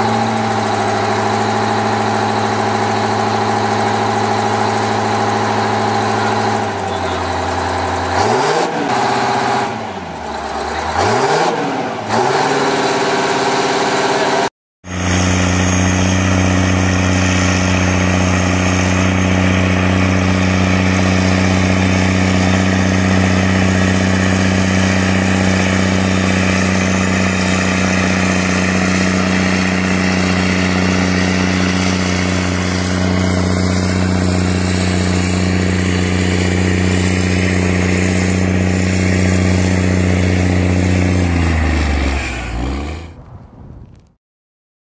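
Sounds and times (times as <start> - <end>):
tractor diesel engine droning: 0.0 - 43.4.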